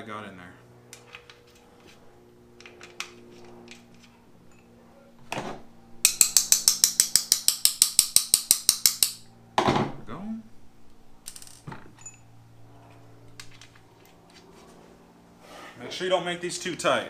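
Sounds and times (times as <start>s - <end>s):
parts being handled: 0.9s - 5.4s, 10.8s - 15.0s
ratchet wrench clicking rapidly: 6.1s - 9.3s.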